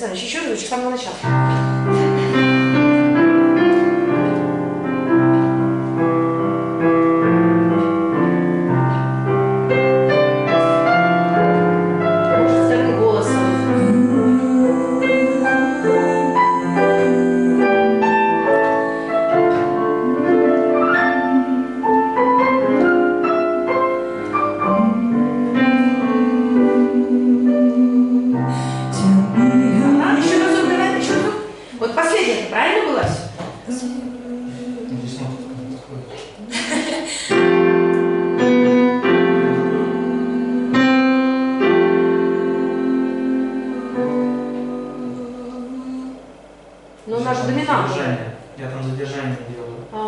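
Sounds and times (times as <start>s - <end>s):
digital piano ballad: 1.1s - 32.2s, 32.8s - 50.0s
woman singing softly without words: 12.3s - 22.9s, 24.1s - 31.8s, 33.3s - 36.7s, 38.9s - 47.2s.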